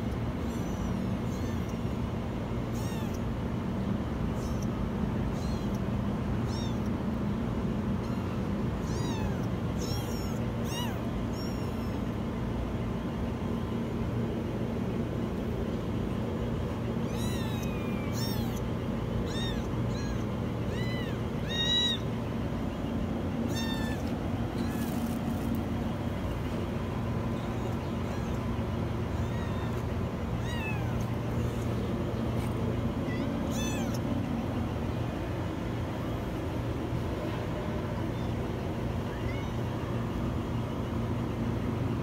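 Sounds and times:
kittens meowing: 0:00.0 - 0:03.4, 0:04.3 - 0:07.0, 0:07.8 - 0:12.4, 0:16.4 - 0:35.1, 0:37.9 - 0:40.2
low background hum: 0:00.0 - 0:42.0.

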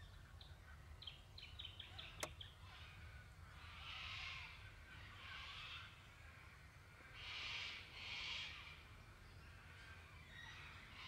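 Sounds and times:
sharp click: 0:02.2 - 0:02.4.

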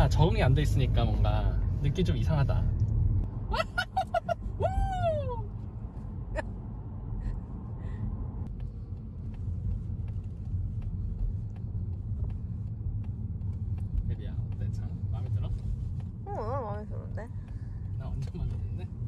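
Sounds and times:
car rumble inside cabin: 0:00.0 - 0:19.0.

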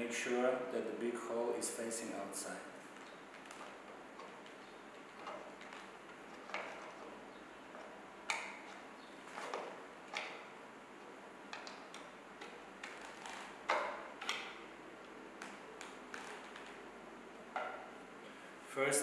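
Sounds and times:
clicks and taps of screwing: 0:11.5 - 0:14.6.

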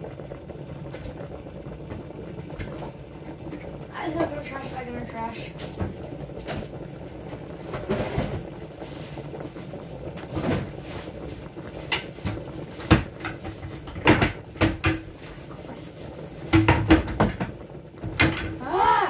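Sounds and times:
plastic trash bag rustling: 0:07.5 - 0:12.8
sharp knocks and clatters: 0:16.4 - 0:18.6.

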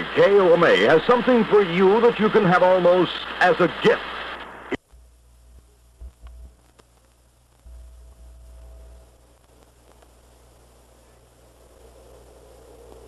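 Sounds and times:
radio announcer speaking: 0:00.0 - 0:04.8
low mains hum: 0:00.0 - 0:13.0
tape hiss: 0:00.0 - 0:13.0.

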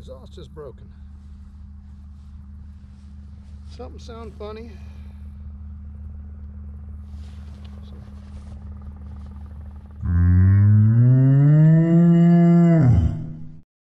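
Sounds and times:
low steady hum: 0:00.0 - 0:13.6
cow mooing: 0:10.0 - 0:13.6.

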